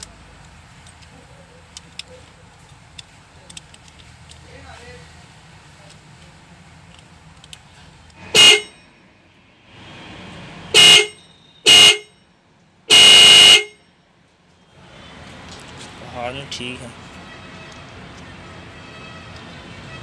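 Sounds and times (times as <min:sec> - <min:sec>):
car horn blasts: 0:08.2 - 0:08.8, 0:10.7 - 0:12.2, 0:12.9 - 0:13.9.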